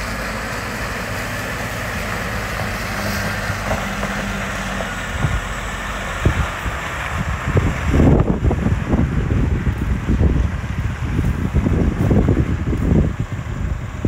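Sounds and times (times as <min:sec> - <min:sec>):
diesel truck engine running: 0:00.0 - 0:14.0.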